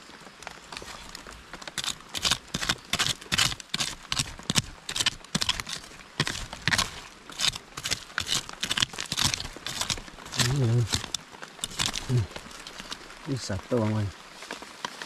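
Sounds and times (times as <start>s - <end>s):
metal blade chopping into soil: 1.7s - 13.0s.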